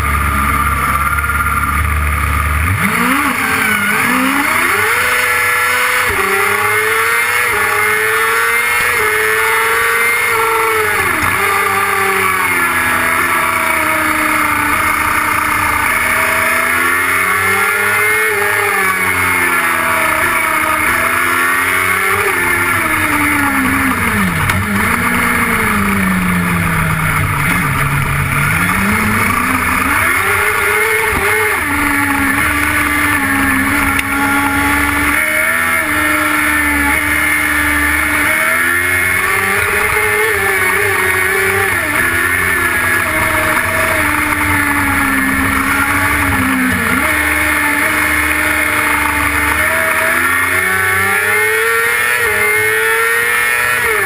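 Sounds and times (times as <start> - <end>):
race car engine revving: 0.0 - 54.0.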